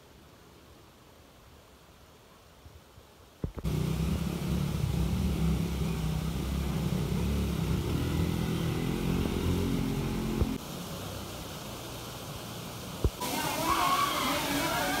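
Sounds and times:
vehicle engine humming: 0:03.6 - 0:12.2.

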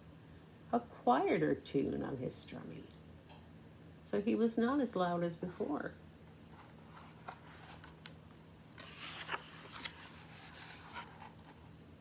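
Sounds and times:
book page turning: 0:06.5 - 0:11.7.

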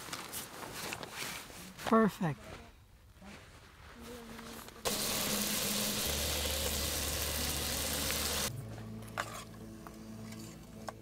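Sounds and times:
gas stove hissing: 0:04.9 - 0:08.5.

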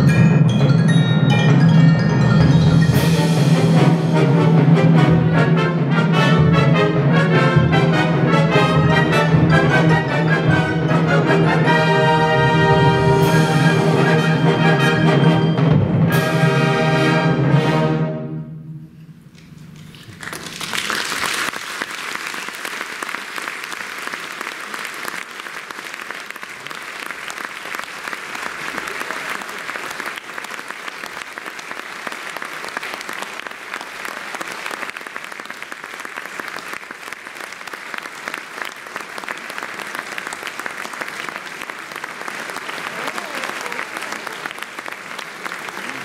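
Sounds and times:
audience applauding: 0:19.8 - 0:46.0.

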